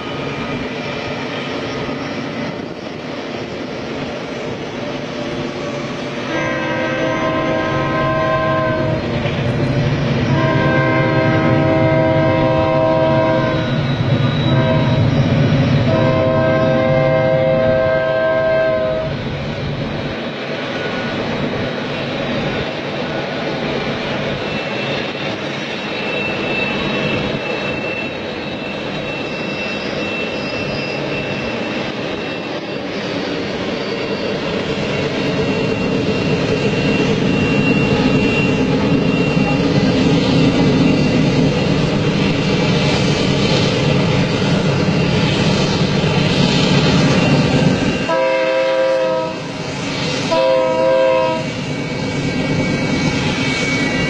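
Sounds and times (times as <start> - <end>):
diesel locomotives rumbling: 0.0 - 54.0
locomotive air horn blasts: 6.3 - 9.0, 10.3 - 13.8, 14.5 - 15.1, 15.9 - 19.1, 48.0 - 49.5, 50.3 - 51.5.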